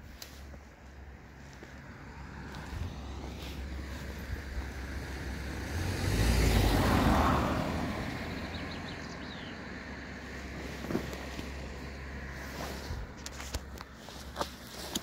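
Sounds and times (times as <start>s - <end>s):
vehicle passing by: 1.8s - 13.3s
wind rumble on microphone: 2.5s - 9.5s.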